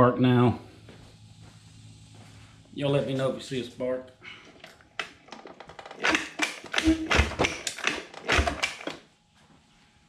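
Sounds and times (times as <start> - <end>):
outboard recoil starter pulls: 4.6 - 9.0.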